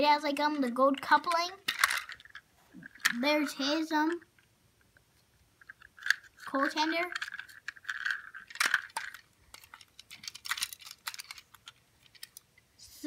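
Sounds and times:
plastic toy clicking and rattling: 0.4 - 3.2, 5.6 - 12.5.

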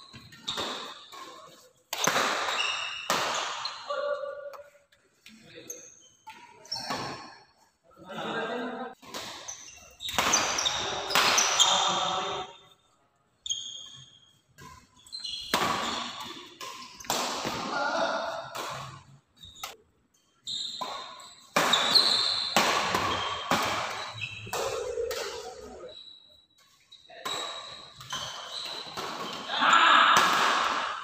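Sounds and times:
shoes squeaking on court: 0.0 - 1.6, 2.4 - 3.8, 4.6 - 7.2, 9.4 - 12.0, 13.4 - 17.1, 19.4 - 29.5
racket striking shuttlecock: 20.8 - 25.8.

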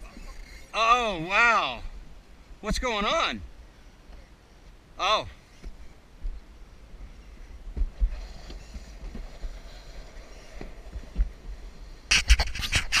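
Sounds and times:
sled rumbling down concrete track: 7.9 - 13.0.

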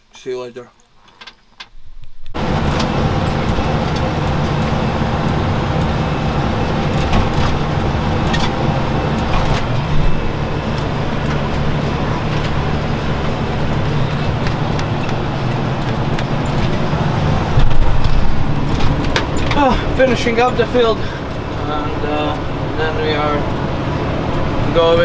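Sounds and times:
tractor engine running: 2.3 - 25.0
sharp knocks and rattles: 6.7 - 21.5.

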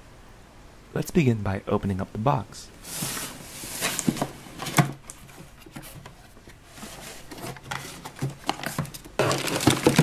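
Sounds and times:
cardboard flaps scraping: 2.8 - 10.0.

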